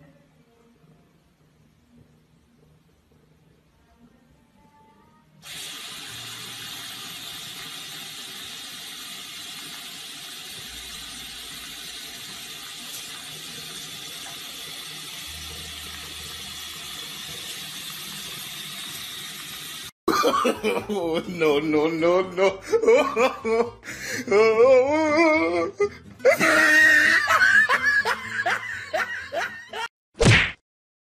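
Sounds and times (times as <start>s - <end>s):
faucet running into sink: 5.4s - 19.9s
person speaking: 20.5s - 25.8s.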